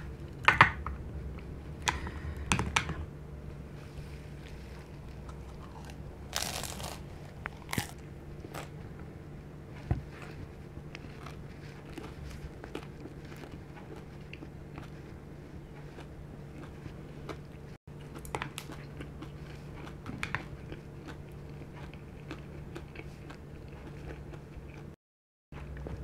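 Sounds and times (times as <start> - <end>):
chewing crispy food: 3.7 - 25.0
crunching bite: 5.2 - 8.8.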